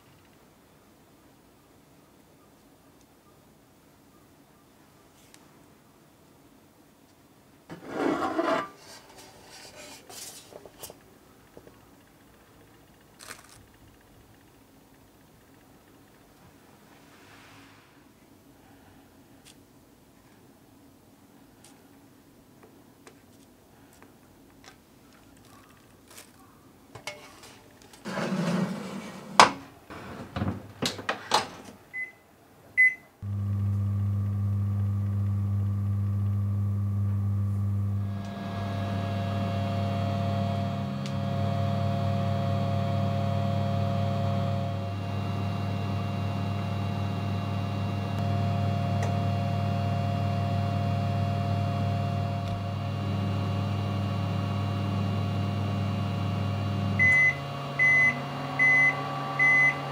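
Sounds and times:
oven control beeps: 0:32.0 - 0:32.2, 0:32.8 - 0:35.3, 0:57.0 - 0:59.9
oven hum and fan: 0:33.2 - 0:59.9.

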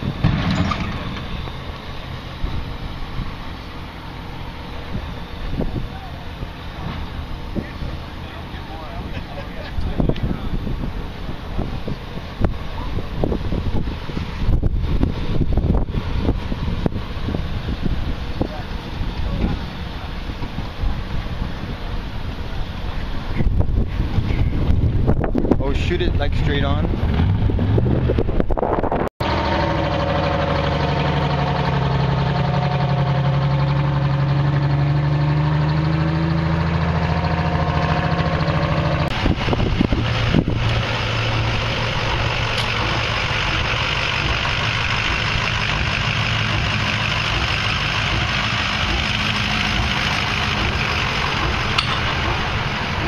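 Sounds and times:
large engines idling: 0:00.0 - 0:28.5, 0:29.2 - 0:53.0.

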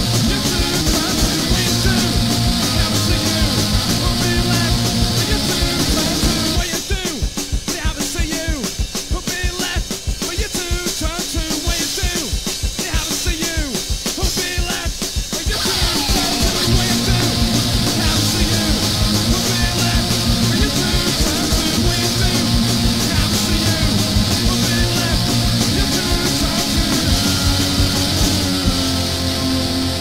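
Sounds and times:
bass guitar: 0:00.0 - 0:07.7, 0:15.5 - 0:30.0
electric guitar: 0:00.0 - 0:30.0
fast drumming: 0:00.0 - 0:30.0.

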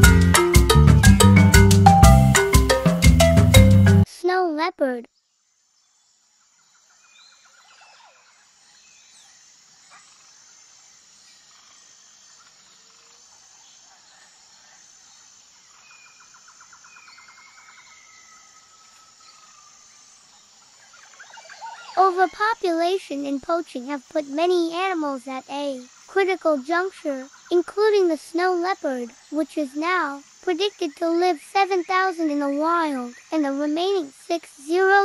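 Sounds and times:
insects chirring: 0:04.2 - 0:35.0
birds trilling and whistling: 0:20.2 - 0:22.6.

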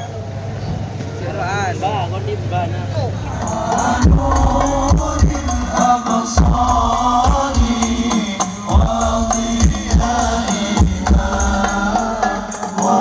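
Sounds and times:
group chanted singing: 0:03.2 - 0:13.0
frame drums and tambourine: 0:03.4 - 0:13.0
deep bass thumps: 0:04.0 - 0:05.8, 0:06.4 - 0:07.8, 0:08.7 - 0:11.6.

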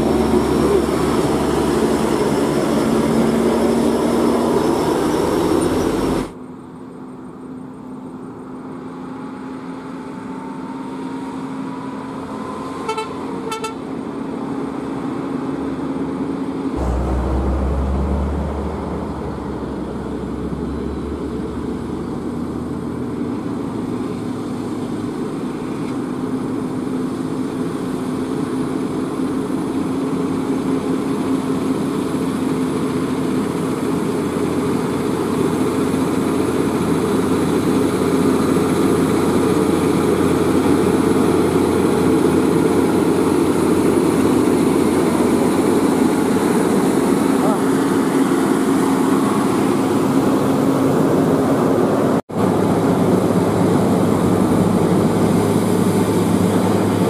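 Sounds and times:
truck passing close: 0:00.0 - 0:06.4, 0:14.0 - 0:25.5, 0:28.0 - 0:57.0
truck diesel engines: 0:00.0 - 0:57.0
vehicle horn toots: 0:12.9 - 0:13.8
deep engine rumble: 0:16.8 - 0:24.1.

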